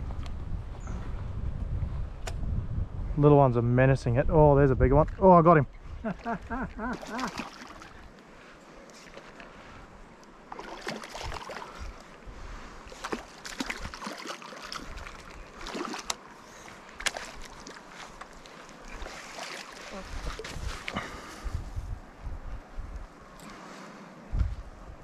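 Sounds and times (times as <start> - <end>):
water splashing and sloshing: 5.7 - 21.5.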